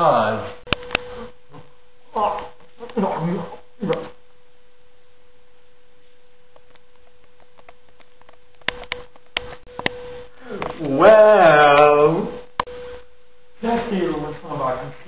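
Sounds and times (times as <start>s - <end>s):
steady single-pitched hum: 0.0s - 15.0s
sharp clicks and knocks: 6.6s - 10.0s.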